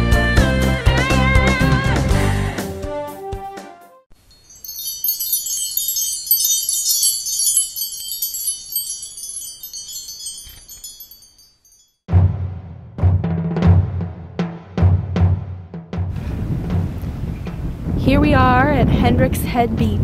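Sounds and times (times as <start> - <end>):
chimes tinkling: 4.1 - 12.1.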